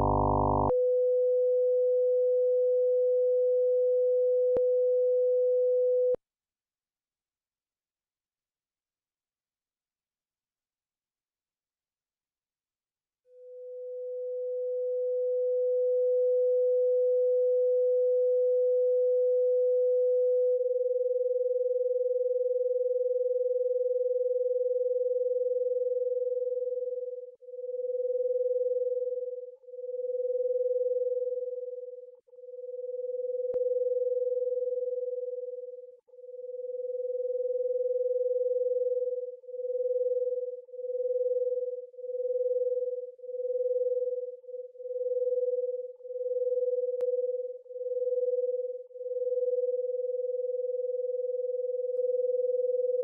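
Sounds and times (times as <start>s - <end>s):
pulsing sine tone: 0.0s - 1.1s, 13.3s - 53.0s.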